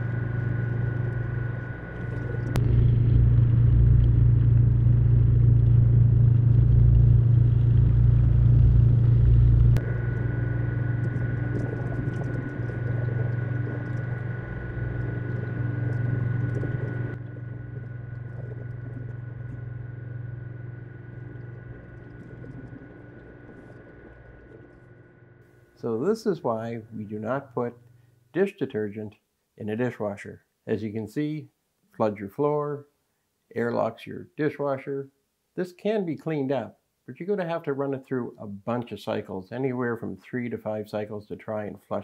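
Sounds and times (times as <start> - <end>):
water noise: 0.0 - 28.0
dishwasher motor hum: 8.8 - 24.7.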